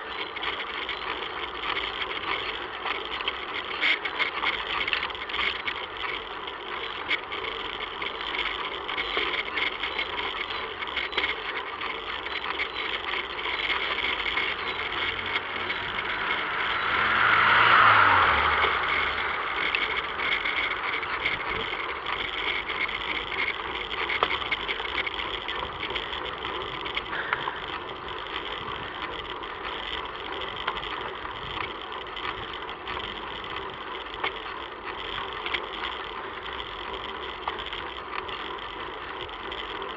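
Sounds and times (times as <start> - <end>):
bicycle rolling and rattling: 0.0 - 39.9
car passing: 13.7 - 23.4.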